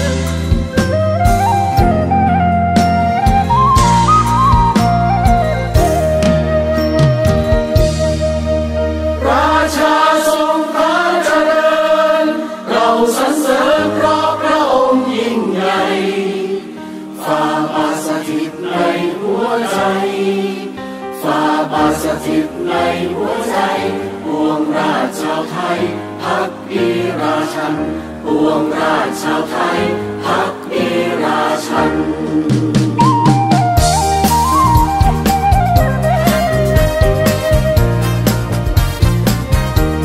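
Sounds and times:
choir singing long held notes: 0:07.7 - 0:35.7.

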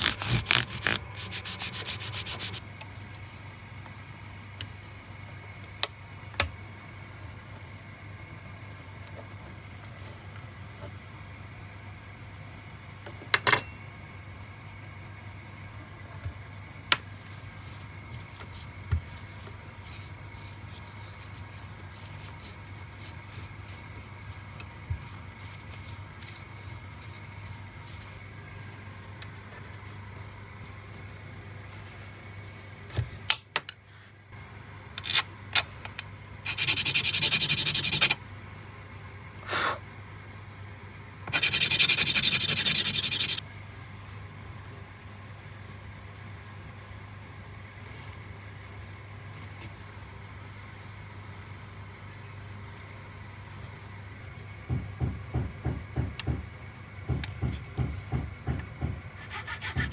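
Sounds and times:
rubbing on abrasive paper: 0:00.0 - 0:02.6, 0:41.3 - 0:43.4
workshop hum: 0:00.0 - 0:59.9.

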